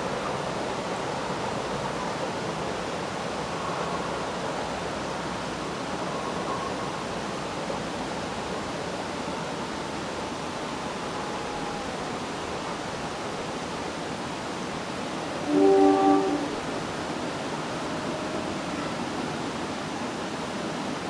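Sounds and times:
background hiss: 0.0s - 21.0s
train air horn: 15.4s - 16.8s.

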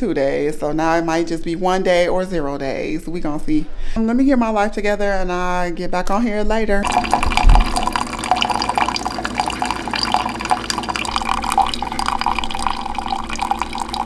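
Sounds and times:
tap water splashing into sink: 6.8s - 14.0s.

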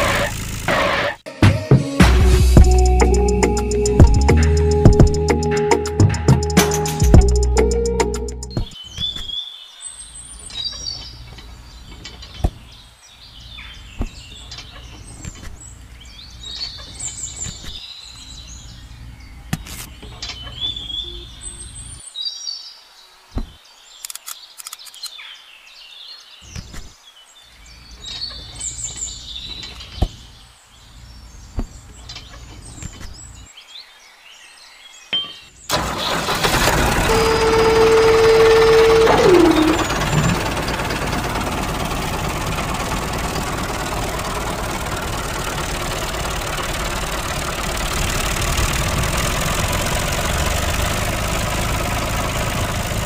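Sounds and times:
birds chirping: 2.6s - 36.5s, 37.1s - 53.0s.

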